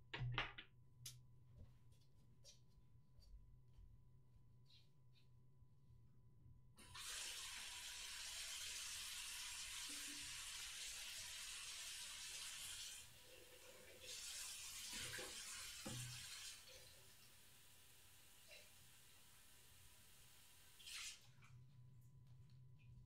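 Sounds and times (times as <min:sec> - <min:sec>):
steady hiss like running water: 0:06.8 - 0:21.3.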